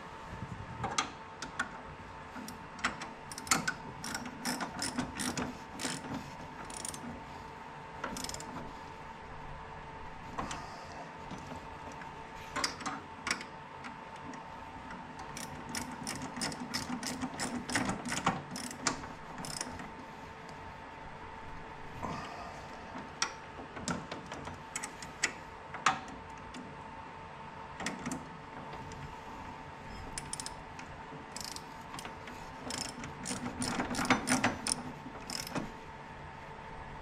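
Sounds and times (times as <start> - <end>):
faint steady hum: 0.0 - 37.0
socket ratchet wrench clicking: 2.9 - 7.0, 8.1 - 8.5, 15.4 - 19.8, 30.2 - 30.6, 31.3 - 35.7.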